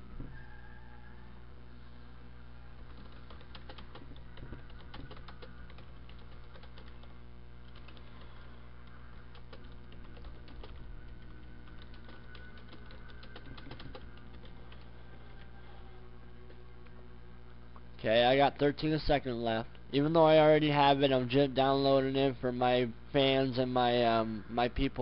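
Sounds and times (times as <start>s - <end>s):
low electrical hum: 0.0s - 25.0s
keyboard typing: 2.8s - 15.5s.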